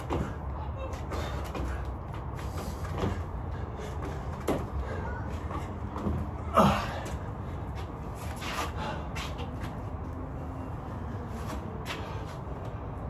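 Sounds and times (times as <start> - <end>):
feet and body thumping on landing: 0.0 - 9.3.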